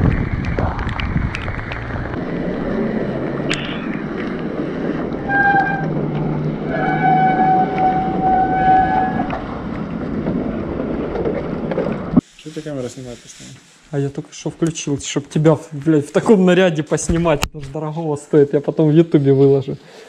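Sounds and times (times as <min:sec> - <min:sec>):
wind and road noise: 0:00.0 - 0:12.8
bicycle brakes squealing: 0:05.2 - 0:06.0, 0:06.7 - 0:09.3.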